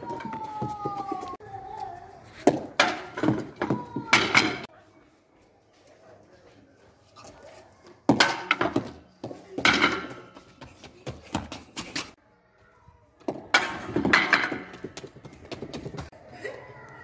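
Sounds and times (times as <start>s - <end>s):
wood clattering on tiled floor: 9.6s - 10.2s, 13.5s - 14.9s.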